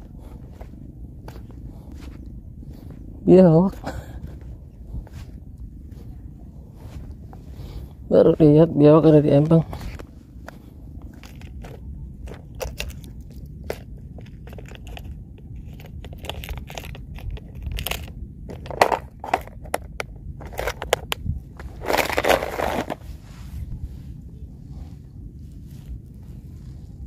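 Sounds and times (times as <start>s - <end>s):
footsteps crunching on dry mud: 0.0s - 18.1s.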